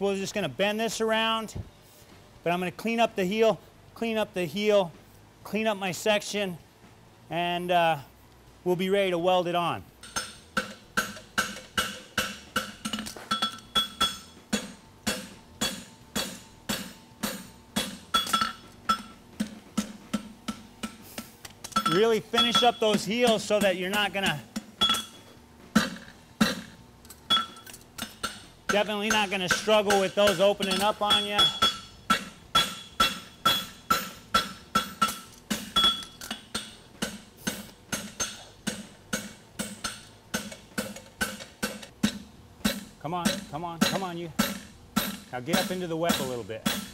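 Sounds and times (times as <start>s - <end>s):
hammer striking metal on anvil: 10.0s - 21.1s, 21.7s - 46.9s.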